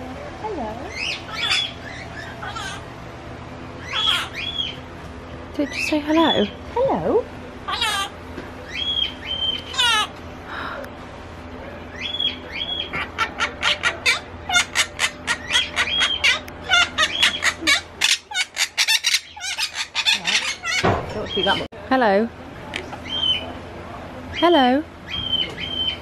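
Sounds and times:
parakeets squawking and chattering: 0.8 - 3.0, 3.8 - 4.9, 5.6 - 6.8, 7.6 - 10.2, 11.8 - 21.7, 22.6 - 23.6, 24.3 - 26.0.

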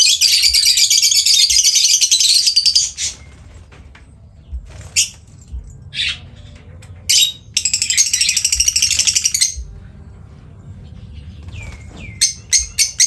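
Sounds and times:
lovebirds chirping: 10.7 - 13.0.

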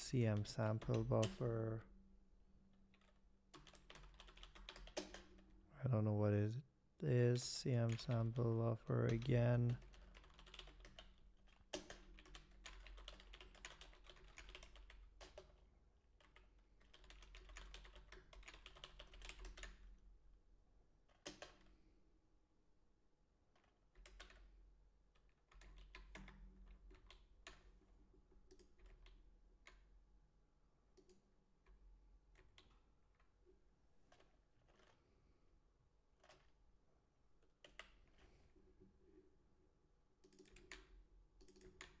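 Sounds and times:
typing on computer keyboard: 3.0 - 5.4, 9.1 - 15.6, 16.2 - 19.8, 23.6 - 24.5, 25.2 - 27.7, 28.5 - 29.8, 34.1 - 35.0, 40.2 - 42.0.

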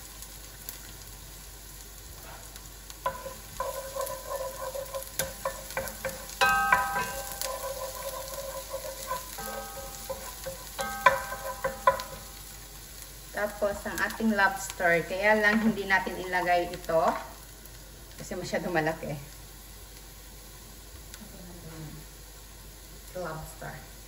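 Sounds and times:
onion and garlic sizzling in oil: 0.0 - 24.0
wooden spoon scraping a pan: 2.2 - 12.4.

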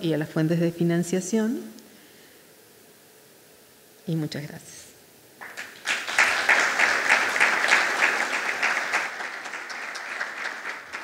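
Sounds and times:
audience applauding: 5.4 - 11.0.

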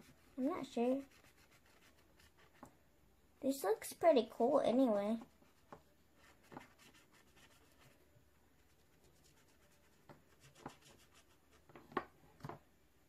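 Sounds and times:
marker scratching on paper: 0.0 - 2.7, 5.2 - 8.0, 8.6 - 11.8.

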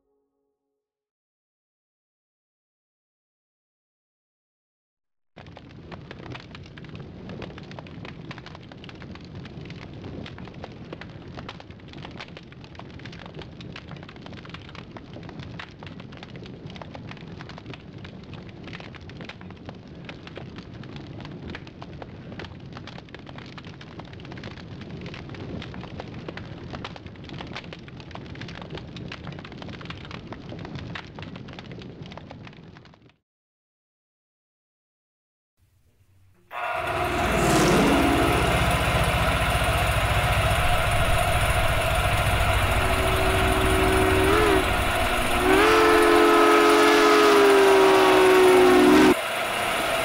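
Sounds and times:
fire crackling: 5.4 - 21.2, 36.8 - 50.0.

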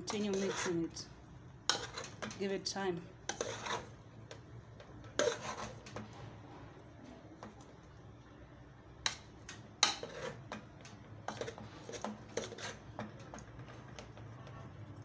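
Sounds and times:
metal spoon scraping a pot: 0.0 - 2.5, 3.2 - 6.1, 9.0 - 14.8.

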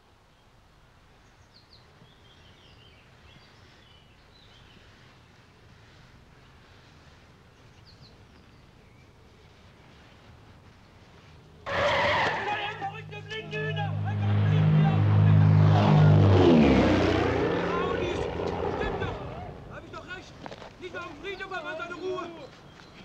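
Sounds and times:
steady low hum: 12.8 - 19.9.

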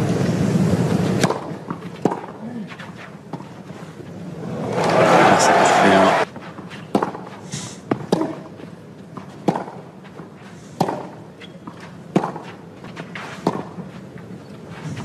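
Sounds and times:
tennis ball struck by rackets: 1.2 - 2.4, 6.9 - 8.6, 9.2 - 13.8.

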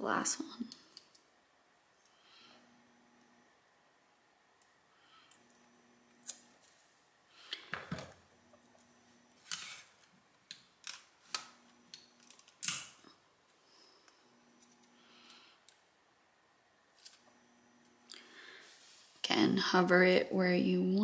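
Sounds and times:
tape pulled and torn off: 9.4 - 10.0.

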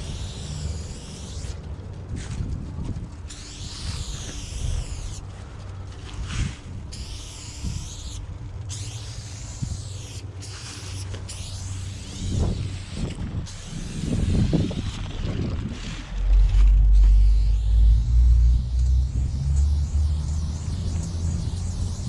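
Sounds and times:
spray paint can hissing: 0.0 - 1.7, 3.2 - 22.0
low rumble: 8.2 - 22.0.

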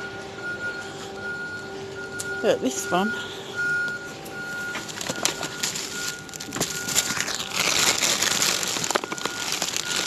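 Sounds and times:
plastic bags crinkling: 4.8 - 10.0.

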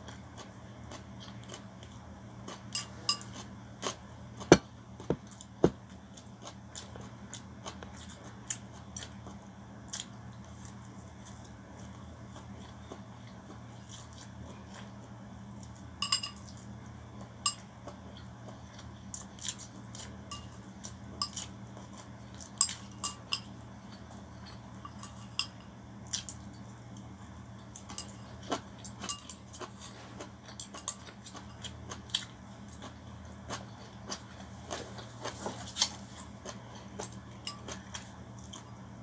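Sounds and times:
chopsticks clinking on ceramic bowl: 2.7 - 3.4, 16.0 - 16.6, 20.3 - 20.6, 21.2 - 21.5, 22.4 - 25.8, 27.8 - 29.6
chewing and mouth sounds: 26.0 - 38.8.

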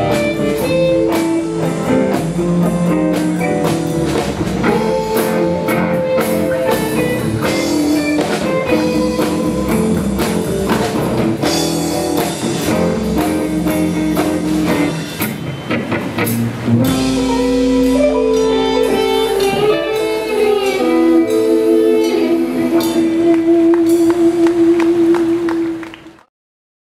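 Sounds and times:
bass guitar: 0.0 - 26.0
drums: 0.0 - 26.2
electric guitars: 0.0 - 26.3
harmonica: 4.7 - 10.2, 17.2 - 25.2.

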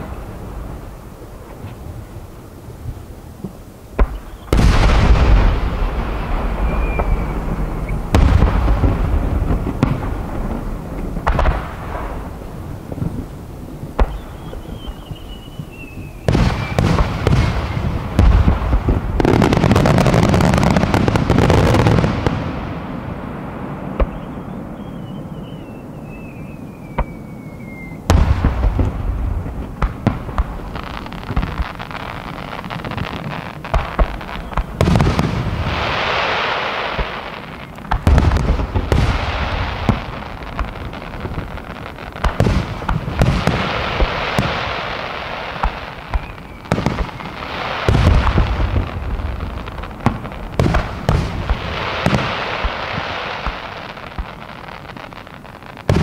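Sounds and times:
firework booms and crackling: 0.0 - 56.0
firework whistle gliding down: 6.4 - 8.2, 14.0 - 17.9, 24.0 - 28.2, 43.4 - 48.4.

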